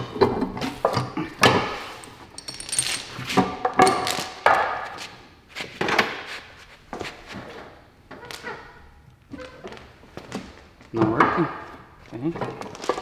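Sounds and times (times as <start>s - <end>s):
heavy chain clanking: 2.0s - 3.2s.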